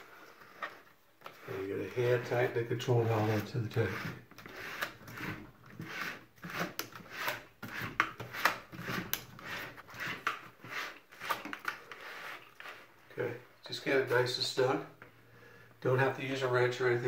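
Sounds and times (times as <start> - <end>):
plastic valve scraping on threads: 0.0 - 13.2.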